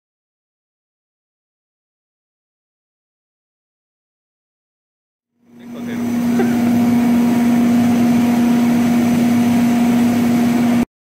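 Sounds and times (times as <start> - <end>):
machinery humming: 5.4 - 10.9.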